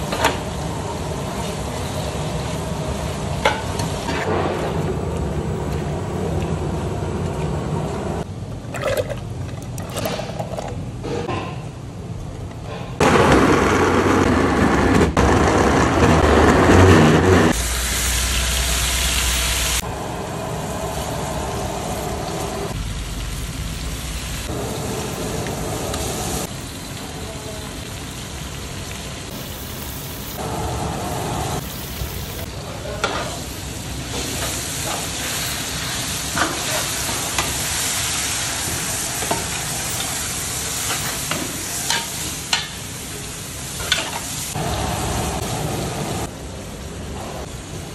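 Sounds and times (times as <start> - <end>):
vegetables sizzling in a pot: 0.0 - 5.0, 16.3 - 47.9.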